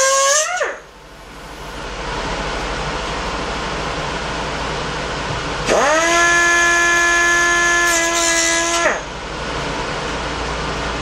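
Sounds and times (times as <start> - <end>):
die grinder whining: 5.6 - 9.1.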